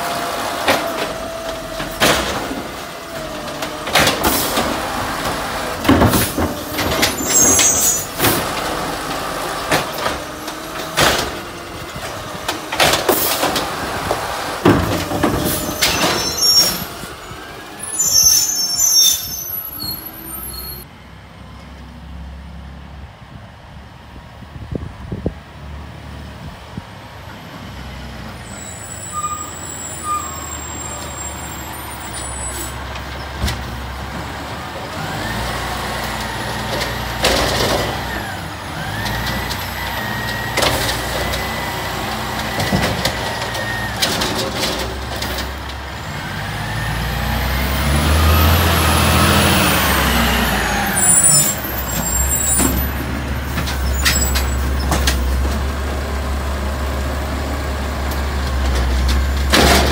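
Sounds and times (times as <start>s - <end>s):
garbage truck diesel engine: 0.0s - 59.9s
high steady squeal: 7.1s - 8.1s.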